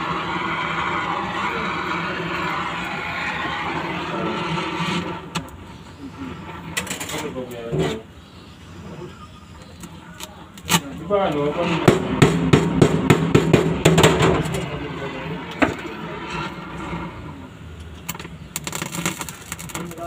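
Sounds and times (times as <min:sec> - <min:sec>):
arc welder crackling: 0:00.0 - 0:07.6, 0:09.7 - 0:20.0.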